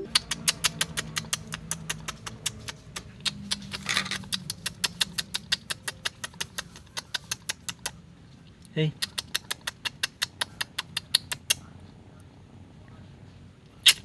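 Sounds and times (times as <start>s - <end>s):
rapid even ticking: 0.0s - 8.0s.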